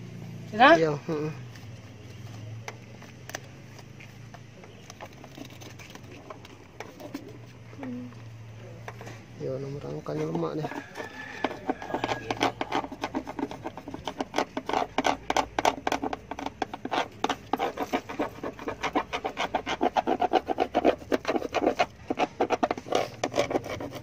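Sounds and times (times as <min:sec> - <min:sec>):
pencil scraping over paper: 0:05.0 - 0:07.6, 0:09.8 - 0:24.0.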